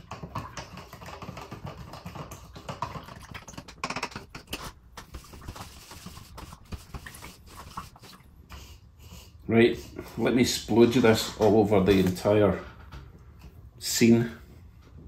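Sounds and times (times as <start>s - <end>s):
stick tapping and scraping a cup: 0.0s - 8.1s.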